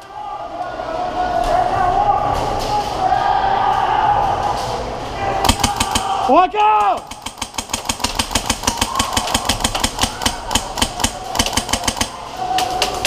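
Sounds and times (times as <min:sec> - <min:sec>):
airsoft rifle firing full auto: 0:05.4 - 0:06.2, 0:07.1 - 0:12.2.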